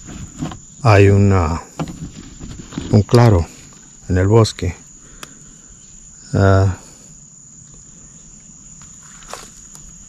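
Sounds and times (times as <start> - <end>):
crickets trilling: 0.0 - 10.0
faint click: 5.2 - 5.4.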